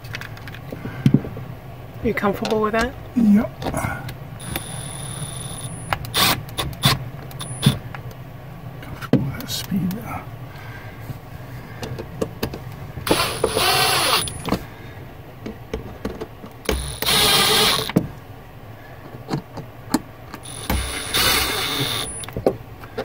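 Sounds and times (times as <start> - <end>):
cordless drill driving screws: 4.4 - 7.8, 13.0 - 14.6, 16.7 - 18.0, 20.4 - 22.3.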